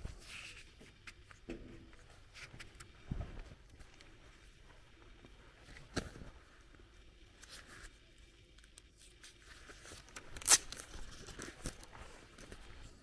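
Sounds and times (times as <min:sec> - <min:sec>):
soft footsteps: 0:00.0 - 0:05.9.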